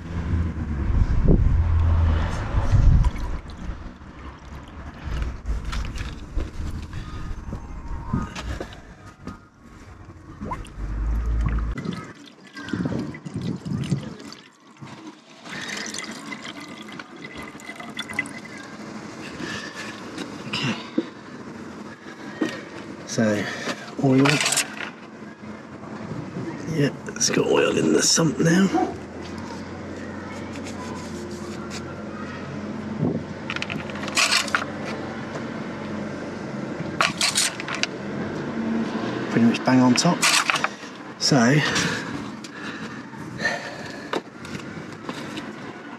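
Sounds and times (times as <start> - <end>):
water trickling into tank: 3.0 - 5.2, 10.4 - 18.9.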